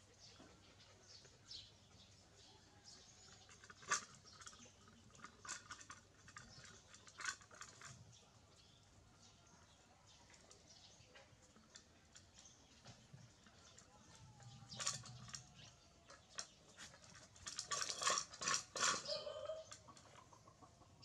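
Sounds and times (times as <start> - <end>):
clinks on metal pot: 16.4 - 19.8.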